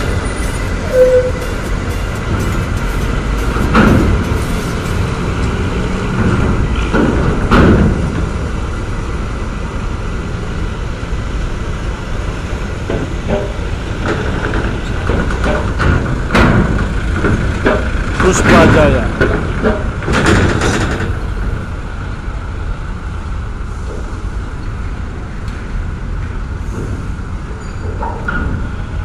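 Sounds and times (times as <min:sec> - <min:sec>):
wheels clanking on metal ramp: 0:00.0 - 0:09.0, 0:12.3 - 0:21.8, 0:26.2 - 0:29.0
bus diesel engine running: 0:00.0 - 0:29.0.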